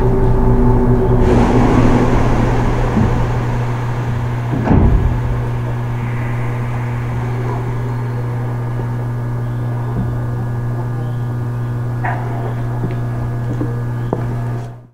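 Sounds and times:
low electrical hum: 0.0s - 14.6s
train doors air hiss: 1.2s - 10.7s.

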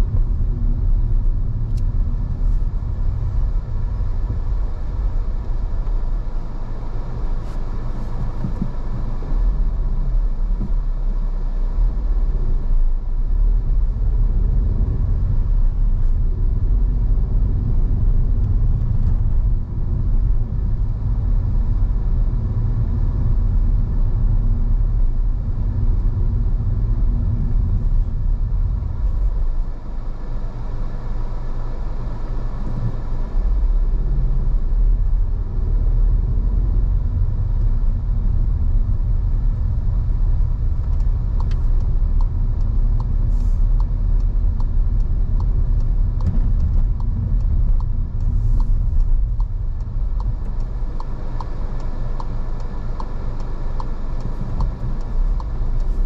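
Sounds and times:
car engine and road rumble: 0.0s - 56.0s
light regular ticking: 36.6s - 56.0s.

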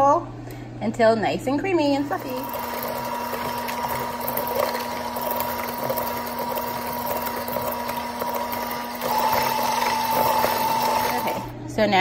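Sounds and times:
electric mixer motor whine: 2.1s - 11.6s.

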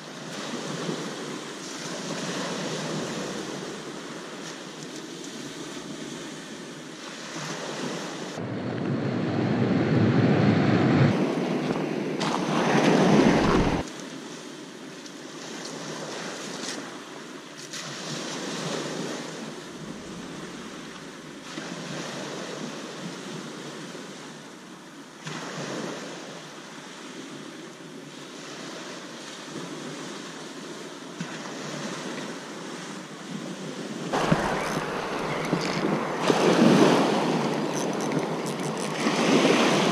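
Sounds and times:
wind buffeting microphone: 8.4s - 13.8s, 33.9s - 39.9s
waves breaking on shingle: 12.2s - 13.9s, 34.1s - 39.9s.

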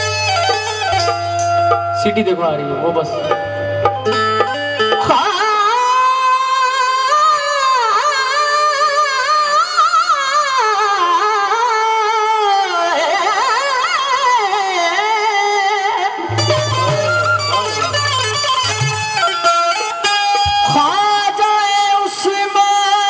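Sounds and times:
drums: 0.0s - 6.9s, 16.3s - 23.0s
sustained harmonium: 0.0s - 23.0s.

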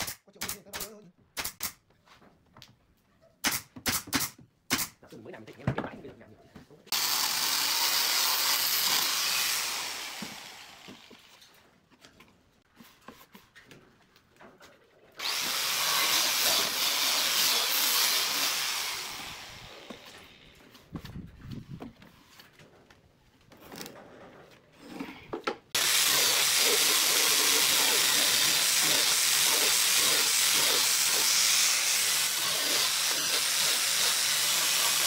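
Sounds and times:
angle grinder sanding wood: 6.9s - 11.4s, 15.2s - 20.4s, 25.8s - 35.0s.

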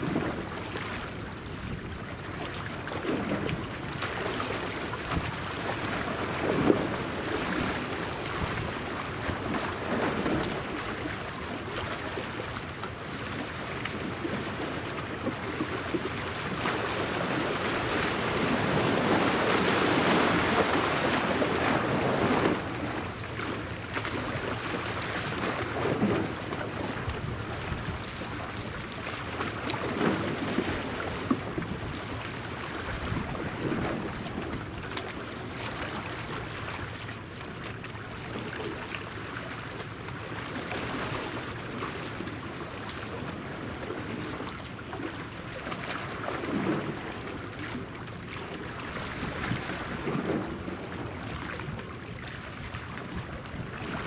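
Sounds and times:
water lapping: 0.0s - 54.0s
wind buffeting microphone: 25.6s - 28.7s, 32.8s - 34.8s.

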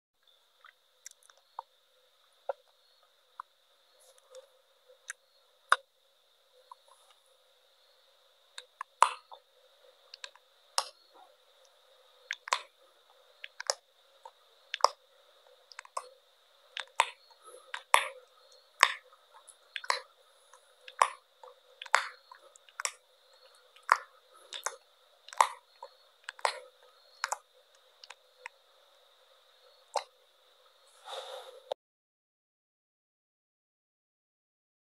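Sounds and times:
faint high-pitched whine: 0.2s - 31.8s.

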